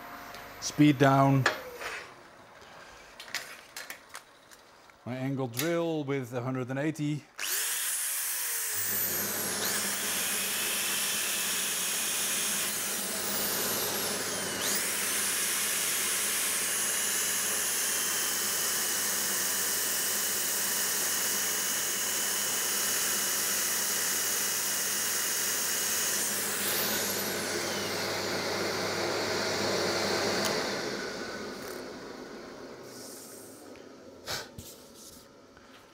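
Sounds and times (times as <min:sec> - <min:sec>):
drill sanding wood: 0:07.4 - 0:32.0
dust extraction rushing: 0:08.7 - 0:17.6.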